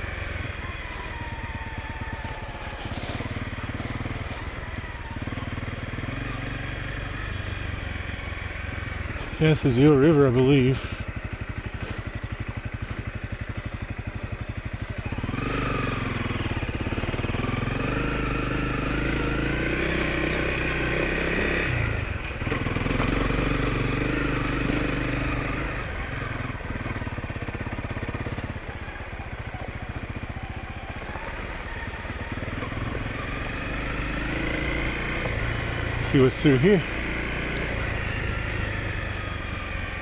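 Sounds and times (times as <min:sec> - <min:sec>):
motorcycle engine idling and revving: 0:00.0 - 0:40.0.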